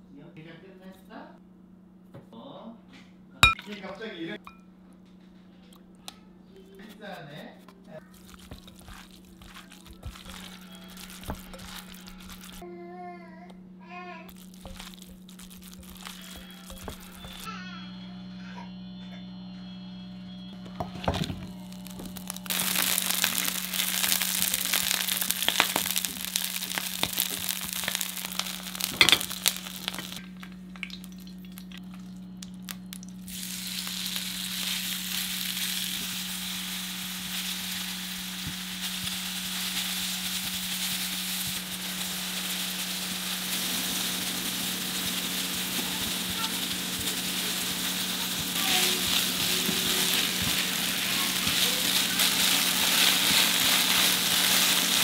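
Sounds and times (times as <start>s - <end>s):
steady low hum: 0.0s - 55.0s
food sizzling in hot oil: 8.0s - 12.6s, 14.3s - 17.5s, 20.8s - 55.0s.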